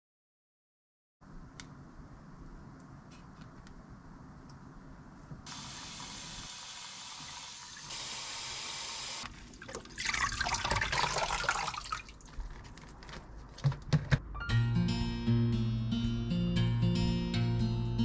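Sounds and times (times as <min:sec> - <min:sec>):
water running from tap: 0:05.5 - 0:08.0, 0:09.1 - 0:12.2
splashing while rinsing food: 0:09.4 - 0:12.5.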